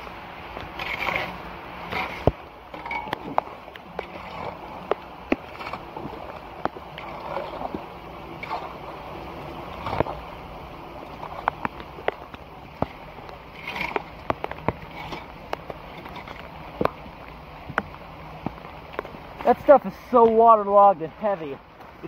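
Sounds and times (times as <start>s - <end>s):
boots wading through water: 0.0s - 22.0s
water splashing and sloshing: 0.0s - 22.0s
soggy leaves pulled from drain: 0.7s - 10.3s.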